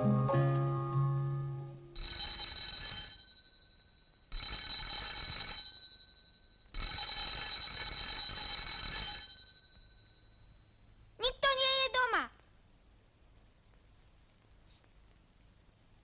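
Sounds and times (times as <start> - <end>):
electric doorbell ringing: 2.0 - 10.4.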